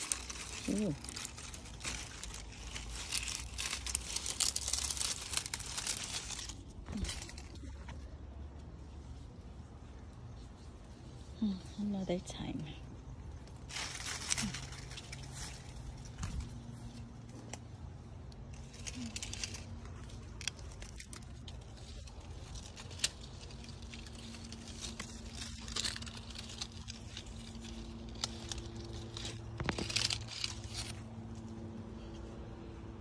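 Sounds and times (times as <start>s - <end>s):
soft rustling: 0.0s - 17.8s
faint low hum: 0.0s - 33.0s.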